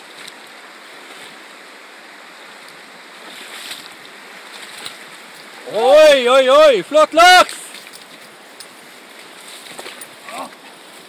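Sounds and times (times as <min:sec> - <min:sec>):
river rushing over stones: 0:00.0 - 0:11.0.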